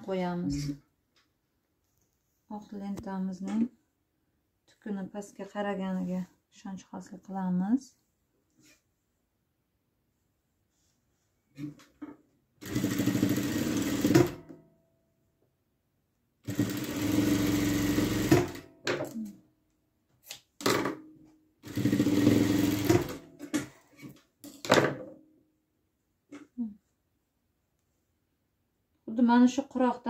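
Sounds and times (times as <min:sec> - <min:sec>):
sewing machine stitching: 0:12.6 - 0:14.4, 0:16.4 - 0:18.7, 0:21.6 - 0:23.7.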